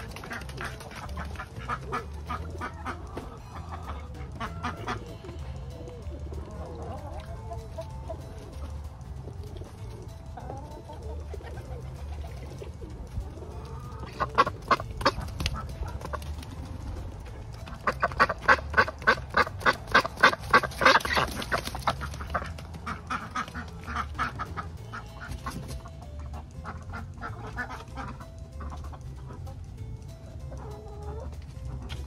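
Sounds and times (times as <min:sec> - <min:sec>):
duck quacking: 0:00.0 - 0:05.2, 0:13.7 - 0:16.2, 0:17.8 - 0:29.5.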